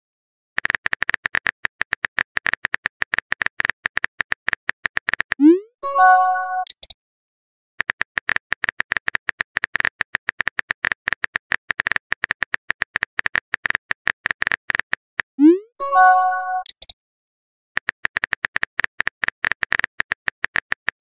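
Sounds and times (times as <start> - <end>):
phone keyboard typing clicks: 0.6 - 5.4, 6.6 - 7.0, 7.8 - 15.0, 16.5 - 17.0, 17.8 - 21.0
message chime: 5.4 - 6.7, 15.4 - 16.7.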